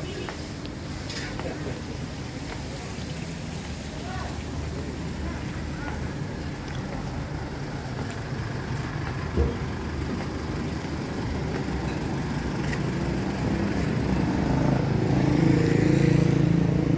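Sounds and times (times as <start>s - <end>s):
vehicle engine running: 3.6s - 16.9s.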